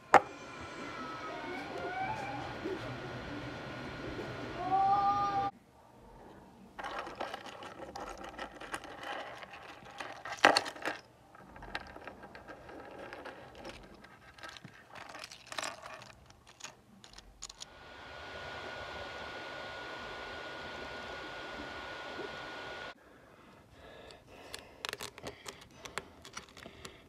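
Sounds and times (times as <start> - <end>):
plastic joints clicking and rattling: 24.4 - 27.0.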